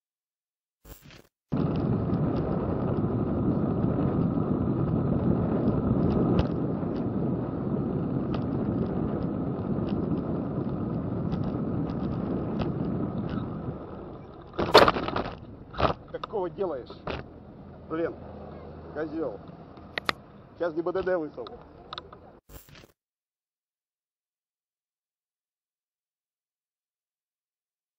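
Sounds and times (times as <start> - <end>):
car tyres on wet road: 1.6 - 22.3.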